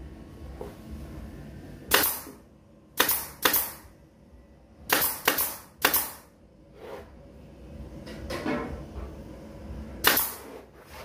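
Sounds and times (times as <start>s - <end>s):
nail gun firing: 1.9s - 2.4s, 3.0s - 3.9s, 4.9s - 6.3s, 10.0s - 10.5s.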